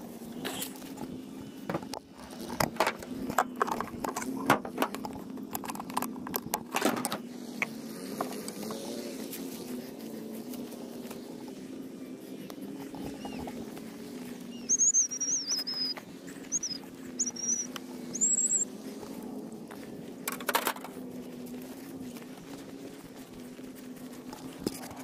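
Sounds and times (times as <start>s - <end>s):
rustling over dry straw: 0.0s - 25.0s
small objects clicking and knocking: 1.7s - 7.2s, 20.2s - 21.0s.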